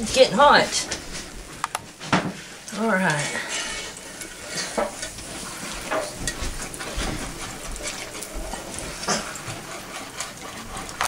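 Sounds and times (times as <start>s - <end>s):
boiling gravy sizzling: 0.0s - 11.0s
whisk stirring bubbling gravy: 0.0s - 11.0s
whisk clicking against pan: 4.2s - 11.0s.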